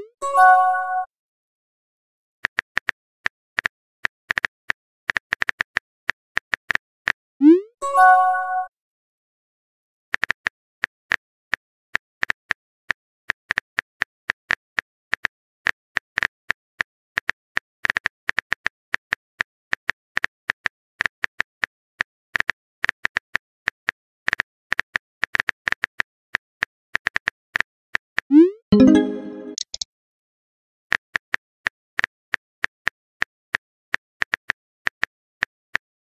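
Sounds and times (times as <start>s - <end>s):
keyboard typing clicks: 28.3s - 29.8s.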